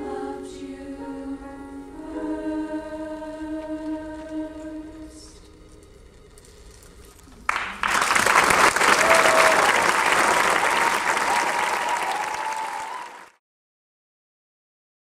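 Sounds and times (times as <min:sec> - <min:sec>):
audience applauding: 0:07.4 - 0:13.4.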